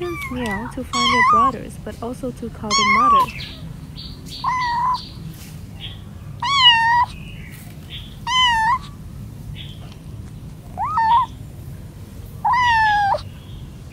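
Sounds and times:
kitten meowing: 0.0 - 1.6, 2.6 - 3.7, 4.4 - 5.0, 6.4 - 7.2, 8.2 - 9.0, 10.8 - 11.4, 12.4 - 13.3.

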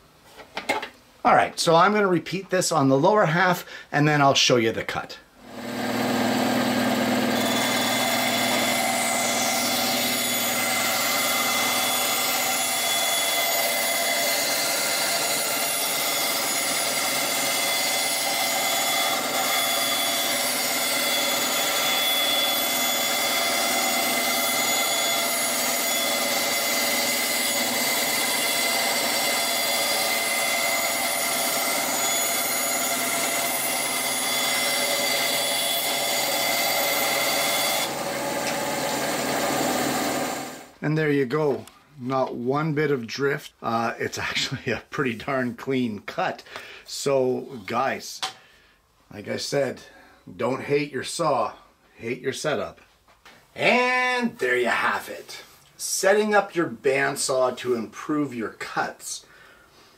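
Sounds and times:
band saw cutting plywood: 5.4 - 40.7.

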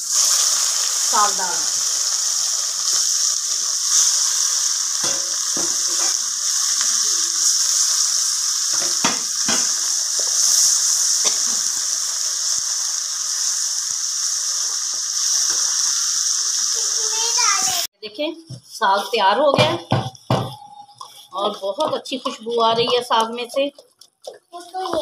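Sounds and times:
onion sizzling in a pot: 0.0 - 25.0
wooden spoon scraping a pot: 20.1 - 24.4.

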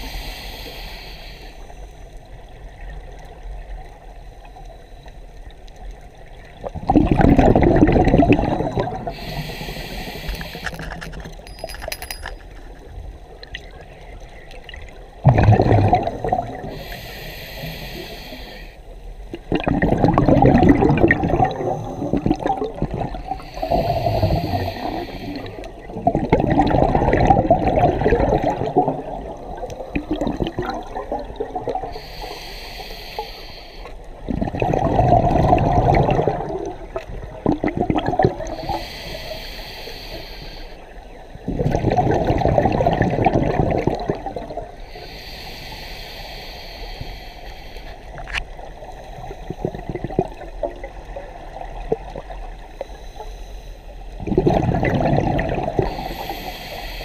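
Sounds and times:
regulator hiss on inhale: 0.0 - 2.3, 8.5 - 12.6, 16.0 - 19.3, 23.1 - 25.9, 31.8 - 34.2, 38.4 - 41.3, 44.8 - 49.9, 52.6 - 54.2, 55.8 - 57.0
bubbling exhaust underwater: 6.4 - 12.2, 14.6 - 53.4, 54.1 - 57.0.

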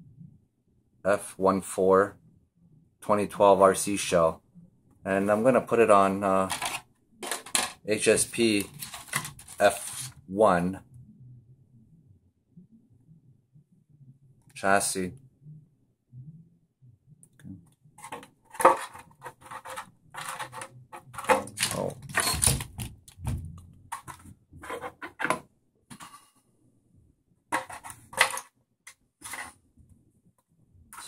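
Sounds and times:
plastic shell crinkling: 8.5 - 10.0.

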